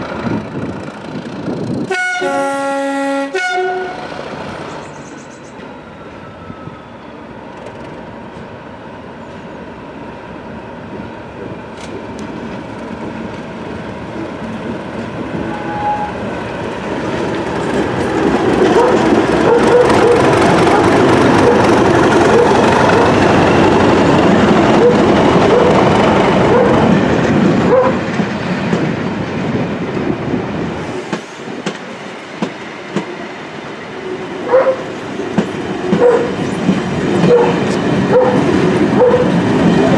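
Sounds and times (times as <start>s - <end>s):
diesel locomotive passing: 0.0s - 39.9s
train wheels clicking over rail joints: 16.4s - 29.4s, 31.0s - 33.2s, 35.3s - 39.9s.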